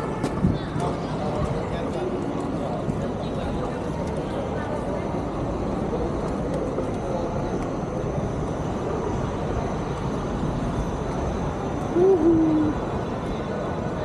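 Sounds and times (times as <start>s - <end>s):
faint distant voices: 0.0s - 14.0s.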